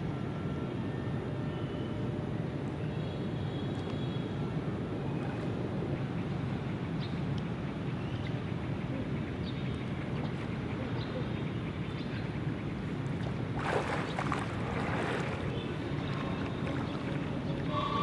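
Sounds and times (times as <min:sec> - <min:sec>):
swimmer splashing water: 0:13.1 - 0:18.0.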